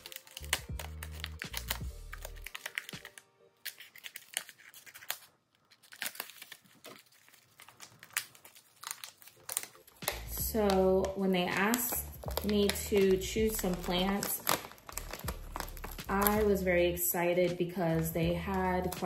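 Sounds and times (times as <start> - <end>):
background music: 0.0 - 4.6, 8.8 - 19.0
scissors snipping: 0.0 - 7.0
plastic sleeve crinkling and tearing: 0.0 - 19.0.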